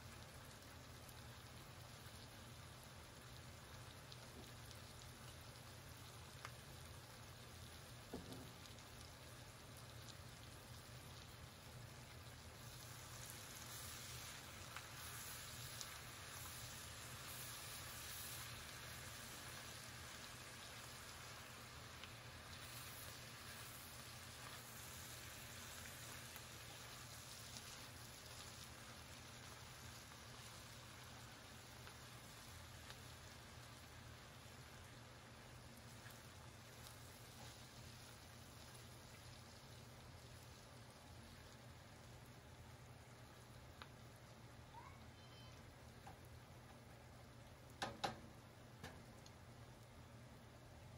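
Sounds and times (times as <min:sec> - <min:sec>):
low steady hum: 0:00.0 - 0:50.9
vegetables sizzling in a pan: 0:00.0 - 0:50.9
spatula stirring in a pan: 0:10.9 - 0:41.7.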